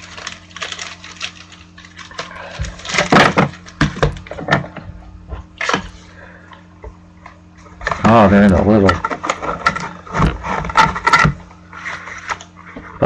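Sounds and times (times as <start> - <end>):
cards rustling and scraping: 0.0 - 4.7, 7.8 - 13.0.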